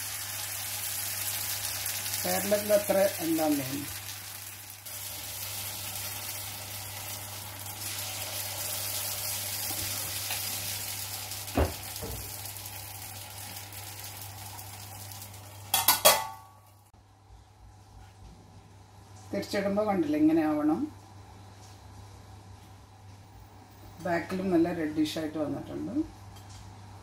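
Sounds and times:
batter sizzling in hot oil: 0.0s - 16.9s.

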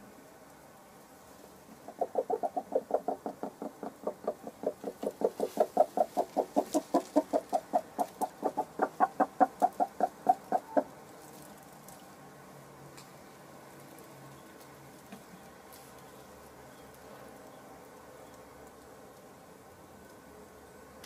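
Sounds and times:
hen clucking: 1.8s - 11.0s.

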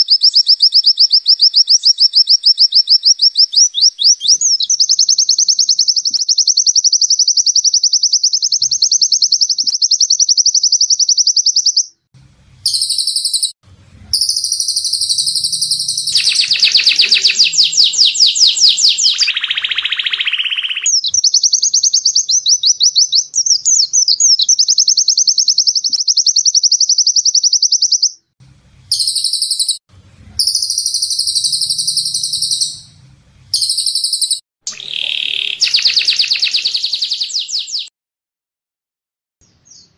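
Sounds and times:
lower coarser bird trill: 0.0s - 37.9s
songbirds high-pitched trills: 12.7s - 13.6s, 14.2s - 28.0s, 28.9s - 29.8s, 30.4s - 33.0s, 33.6s - 37.9s.

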